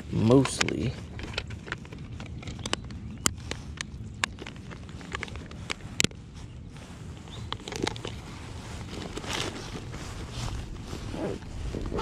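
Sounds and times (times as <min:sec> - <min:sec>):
nylon bag rustling: 0:04.4 - 0:12.0.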